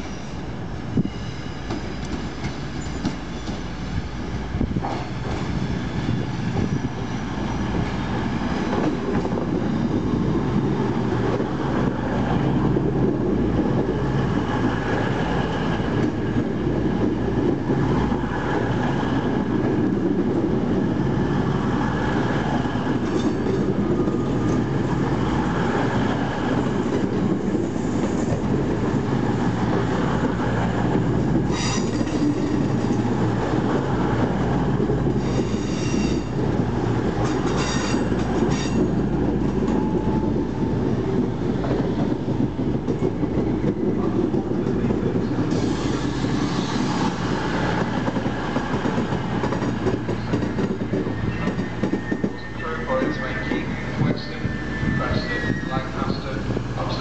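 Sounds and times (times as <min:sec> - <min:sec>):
high-pitched brake squeals: 0:02.7 - 0:03.5, 0:35.2 - 0:36.3, 0:51.1 - 0:56.2.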